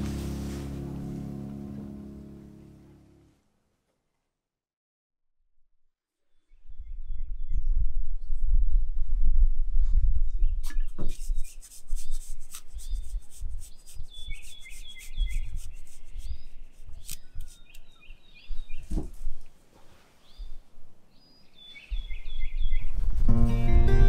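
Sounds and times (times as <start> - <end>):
low rumble: 0.0 - 3.3
bird chirping: 10.4 - 19.0, 20.2 - 23.2
cheese grating: 11.1 - 17.7.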